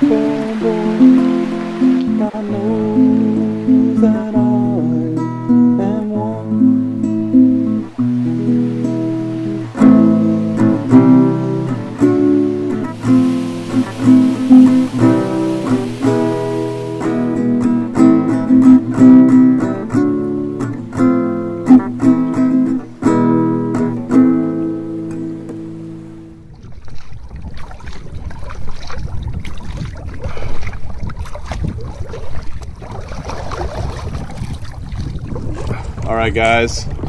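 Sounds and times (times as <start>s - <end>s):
acoustic guitar strumming: 0.0s - 26.5s.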